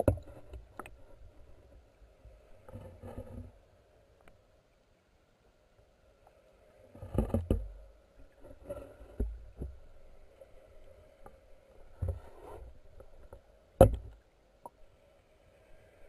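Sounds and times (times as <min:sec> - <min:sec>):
faint steady hum: 0:00.0 - 0:16.0
muffled underwater thumps: 0:13.8 - 0:14.2.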